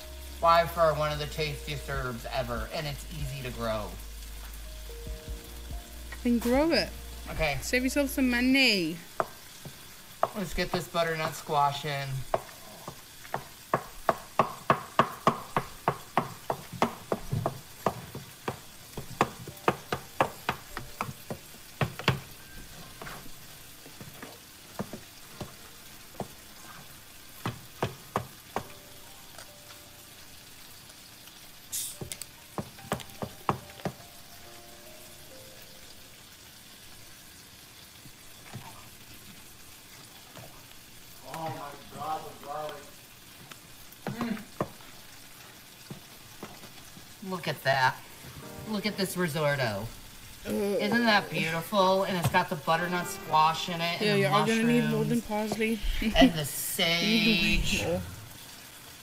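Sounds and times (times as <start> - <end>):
faint pan sizzle: 0.0 - 59.0
wooden spoon knocking pot: 9.1 - 11.4, 12.2 - 22.4, 27.4 - 28.7, 32.6 - 34.0.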